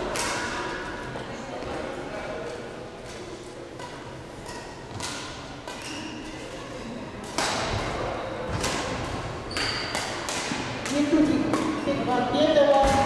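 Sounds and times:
background chatter: 0.0 - 13.0
racket hitting shuttlecock: 0.1 - 0.6, 3.1 - 6.4, 7.2 - 11.8.

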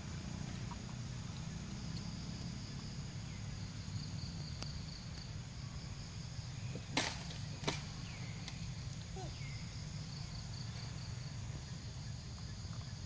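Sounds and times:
insects buzzing: 0.0 - 13.0
low hum: 0.0 - 13.0.

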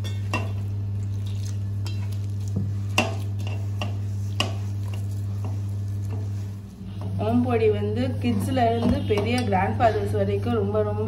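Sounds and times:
hand kneading dough in bowl: 0.0 - 7.6
steady low hum: 0.0 - 11.0.

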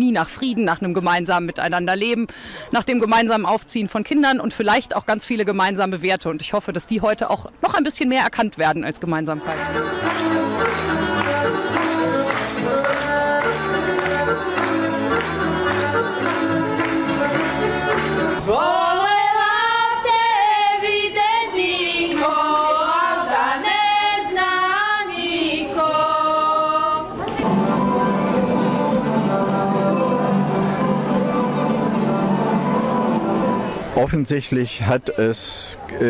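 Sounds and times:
folk dance music: 9.2 - 34.0
women singing unaccompanied: 18.4 - 33.8.

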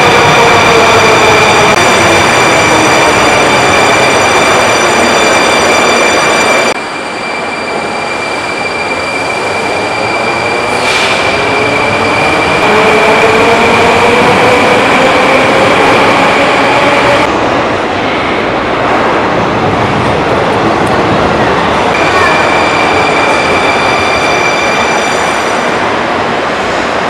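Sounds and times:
metro train running: 0.0 - 27.0
steady high tone: 21.9 - 25.6.

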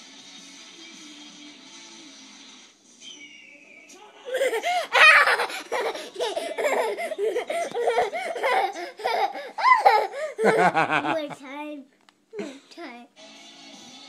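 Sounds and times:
young boy laughing: 4.2 - 11.5.

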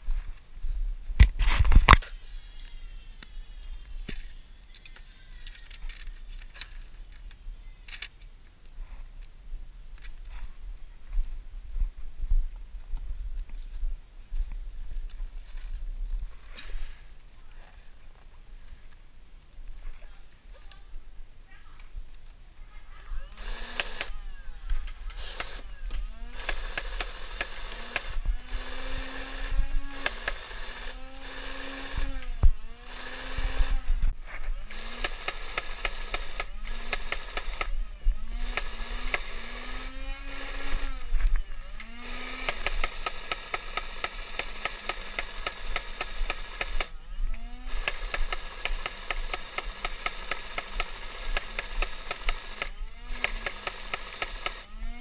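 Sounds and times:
blaster motor whining: 23.2 - 55.0
fast clicking: 23.4 - 24.2, 24.8 - 33.8, 34.7 - 37.8, 38.4 - 46.9, 47.6 - 54.7.

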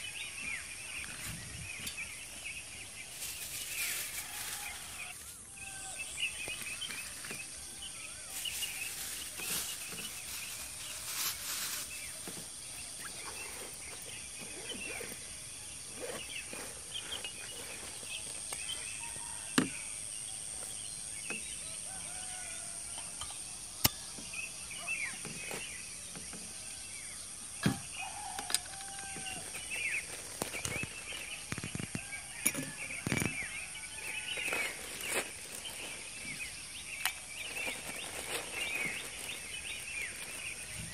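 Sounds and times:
plastic bags rustling: 2.0 - 19.5, 28.0 - 40.9
bird chirps: 4.6 - 40.9.

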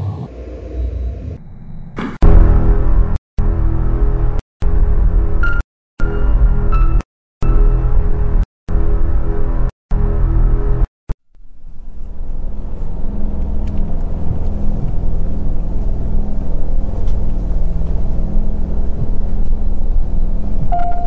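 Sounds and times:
low rumble: 11.6 - 21.0.

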